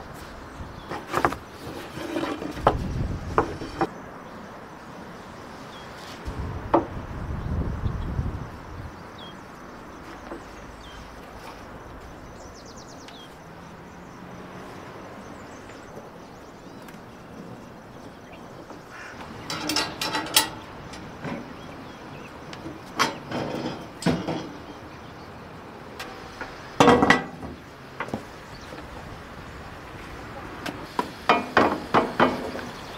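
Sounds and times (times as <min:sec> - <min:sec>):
knocking and clatter: 0:19.3 - 0:21.6, 0:22.6 - 0:24.6.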